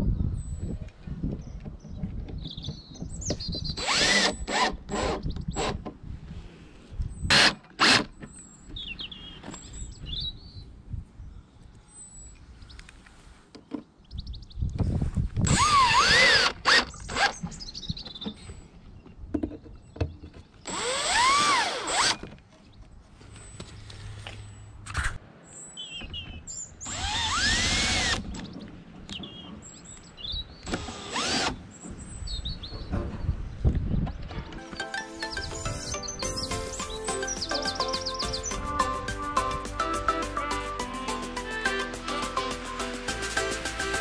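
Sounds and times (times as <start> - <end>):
cordless drill driving screws: 3.8 - 5.9, 7.3 - 8.2, 15.4 - 17.4, 20.7 - 22.2, 26.8 - 28.4, 30.6 - 31.6.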